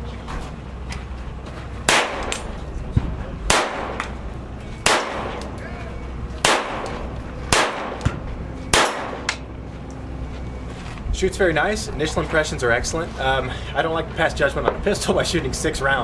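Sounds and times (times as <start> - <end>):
pistol shots: 1.9 - 2.5, 3.5 - 4.2, 4.8 - 5.6, 6.4 - 9.4.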